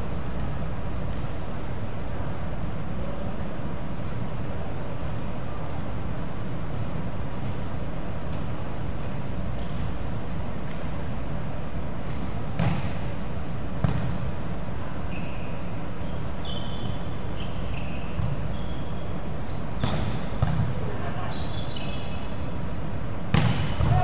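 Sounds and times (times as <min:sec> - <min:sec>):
low hum of hall: 0:00.0 - 0:24.0
volleyball thumps: 0:13.8 - 0:14.2, 0:19.8 - 0:20.8, 0:23.3 - 0:24.0
sneaker squeaks: 0:15.0 - 0:22.6.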